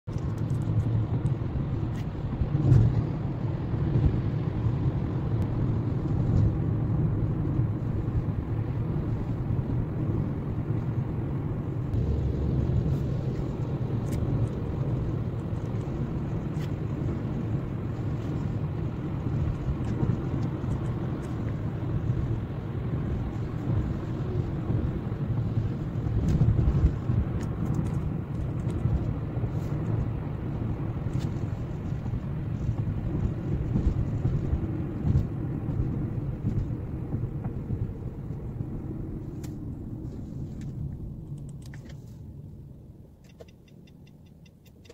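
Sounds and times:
car driving on wet road: 0:00.1 - 0:44.9
faint ticks: 0:43.2 - 0:44.9.

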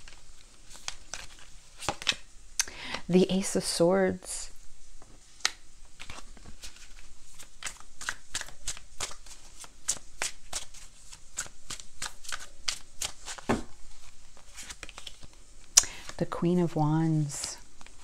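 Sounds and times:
cards riffling: 0:05.4 - 0:16.2.

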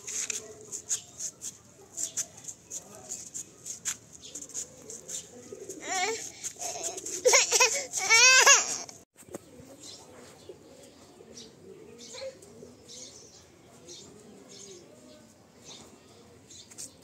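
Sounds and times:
birds chirping: 0:00.0 - 0:06.4, 0:09.3 - 0:17.0
birds cooing: 0:04.2 - 0:17.0
toddler crying: 0:05.8 - 0:09.0.

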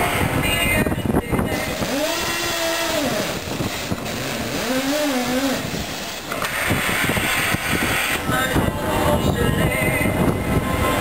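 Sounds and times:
drilling machinery running: 0:01.5 - 0:08.2
hydraulic tong motor spinning: 0:01.5 - 0:08.2.

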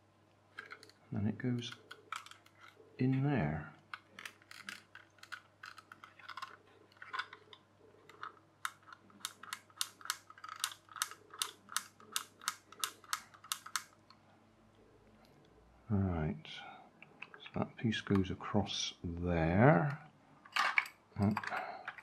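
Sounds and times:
plastic toy parts clicking: 0:00.6 - 0:02.8, 0:03.8 - 0:14.2, 0:20.4 - 0:22.0.

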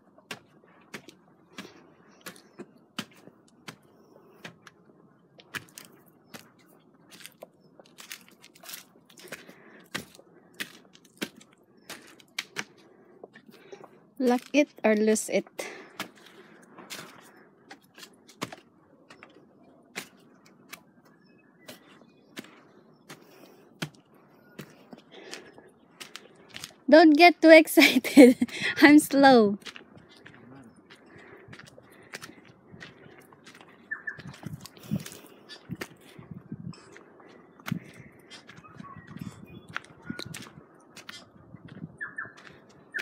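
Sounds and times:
footsteps on dirt trail: 0:00.0 - 0:19.4, 0:20.0 - 0:43.0
footsteps on wooden steps: 0:20.0 - 0:26.8, 0:29.6 - 0:42.8.

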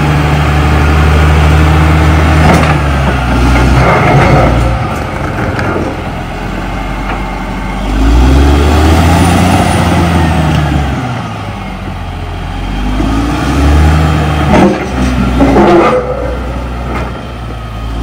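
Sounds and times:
bulldozer diesel engine revving: 0:00.0 - 0:18.0.

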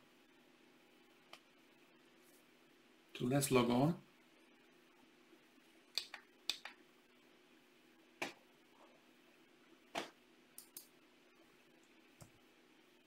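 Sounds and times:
faint steady hum: 0:00.0 - 0:13.0
computer keys clicking: 0:06.0 - 0:06.8.

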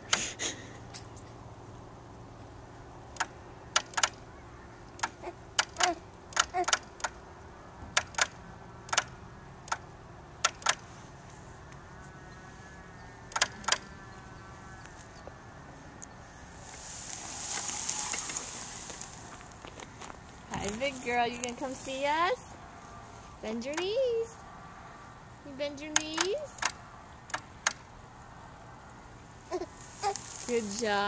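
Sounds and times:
sharp short clicks: 0:03.1 - 0:04.2, 0:04.9 - 0:07.2, 0:08.0 - 0:10.8, 0:13.3 - 0:13.9, 0:25.9 - 0:27.9.

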